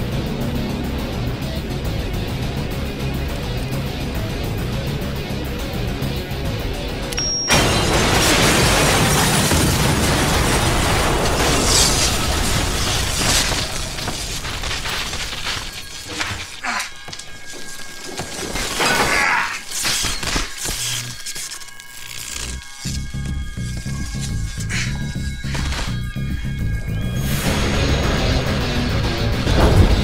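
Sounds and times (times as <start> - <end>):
glass breaking: 7.2 - 16.7
falling debris crashing: 7.5 - 20.6.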